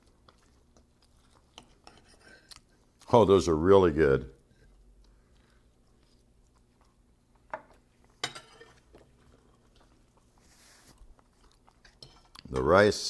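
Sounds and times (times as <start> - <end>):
fork clinking on plate: 8.2 - 8.8.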